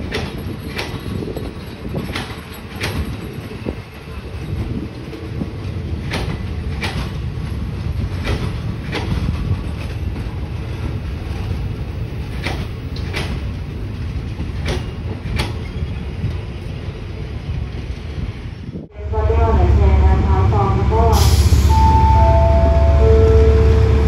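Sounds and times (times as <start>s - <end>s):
train wheels clicking over rail joint: 0.0s - 3.8s, 6.0s - 10.3s, 12.1s - 16.4s
train rolling low rumble: 0.0s - 24.0s.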